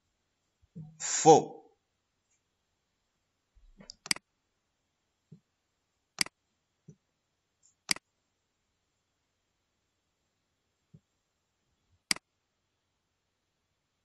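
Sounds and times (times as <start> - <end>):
mouse buttons clicking: 3.8 - 4.2.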